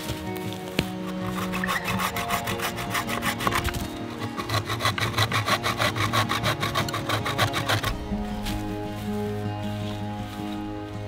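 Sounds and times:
hand saw cutting branch: 0:01.1 - 0:08.1.

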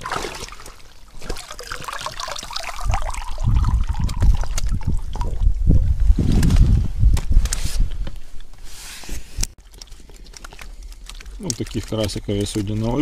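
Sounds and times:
water pouring and dripping: 0:00.0 - 0:05.8, 0:09.6 - 0:13.0.

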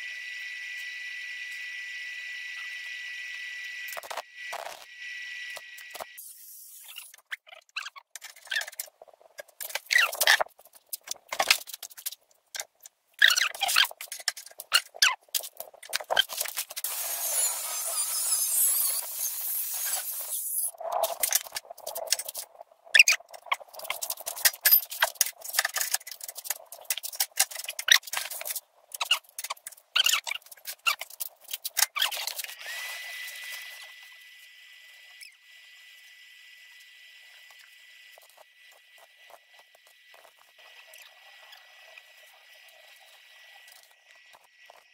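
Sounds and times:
arc welding crackling: 0:15.4 - 0:22.5.

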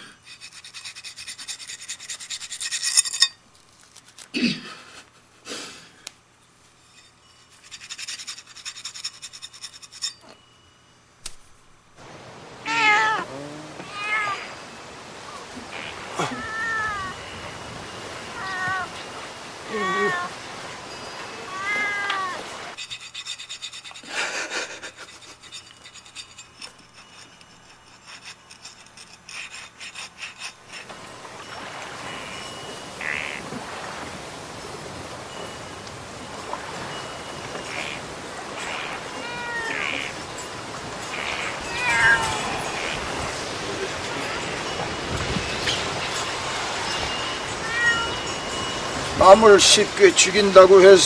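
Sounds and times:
cat meowing: 0:12.6 - 0:14.6, 0:15.3 - 0:17.3, 0:18.3 - 0:20.4, 0:21.3 - 0:22.7, 0:37.6 - 0:40.2, 0:41.0 - 0:43.4, 0:47.5 - 0:48.4.

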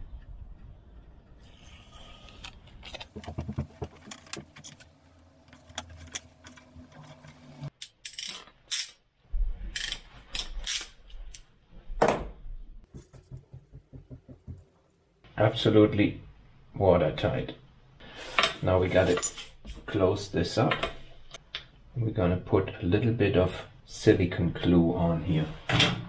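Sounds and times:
metal parts and tools clinking: 0:05.5 - 0:09.0, 0:09.7 - 0:11.5, 0:19.0 - 0:19.6.

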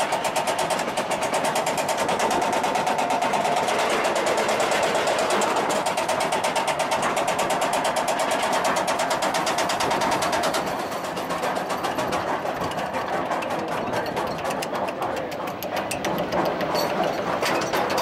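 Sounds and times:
steady mechanical hum: 0:00.0 - 0:18.0
lift chain clacking: 0:10.6 - 0:18.0.

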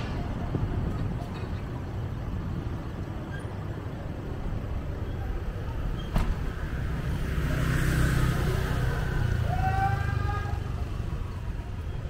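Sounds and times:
road traffic rumble: 0:00.0 - 0:12.0.

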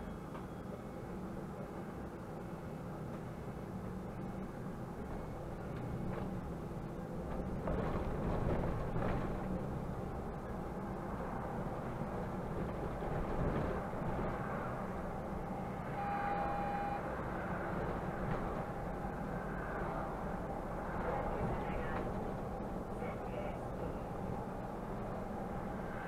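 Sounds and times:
bus diesel engine running: 0:00.0 - 0:26.0
road noise: 0:00.0 - 0:26.0.

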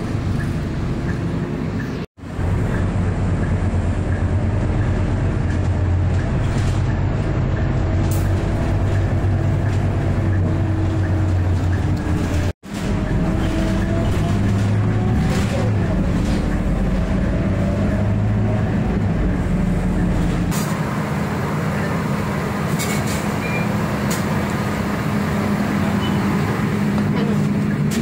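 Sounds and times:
bus engine hum: 0:00.0 - 0:28.0
road rumble: 0:00.0 - 0:28.0
short beep: 0:23.4 - 0:23.7.

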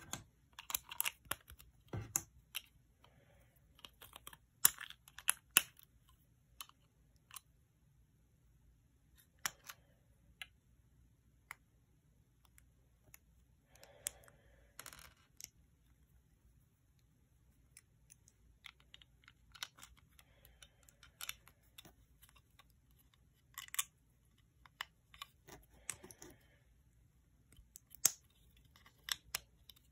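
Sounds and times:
plastic bricks clicking: 0:00.0 - 0:02.7, 0:03.7 - 0:05.9, 0:18.1 - 0:26.4.

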